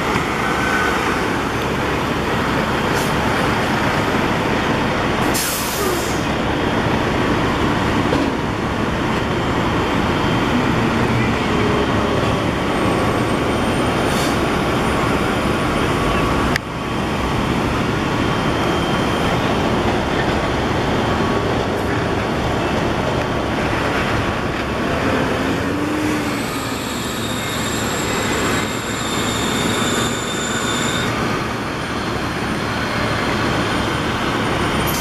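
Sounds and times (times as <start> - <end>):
heavy diesel engines rumbling: 0.0 - 35.0
rushing noise: 0.0 - 35.0.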